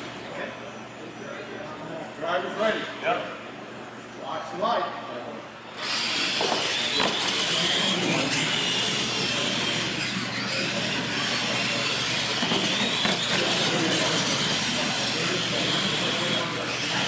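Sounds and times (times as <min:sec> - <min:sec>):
toy truck motors whining: 0:05.7 - 0:17.0
drivetrain and tyres grinding: 0:05.8 - 0:17.0.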